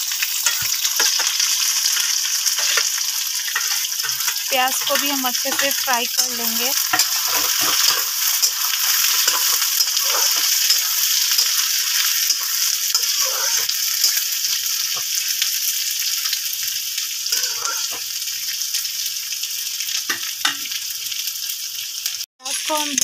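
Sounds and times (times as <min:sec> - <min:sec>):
onions sizzling in hot oil: 0:00.0 - 0:23.0
spatula scraping and knocking pan: 0:00.4 - 0:15.1, 0:17.3 - 0:18.0.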